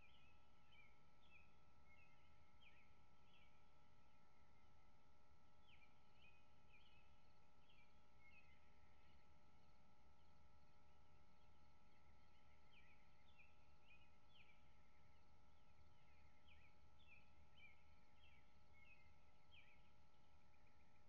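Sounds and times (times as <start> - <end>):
faint hum: 0.0 - 21.0
bird chirping: 11.8 - 21.0.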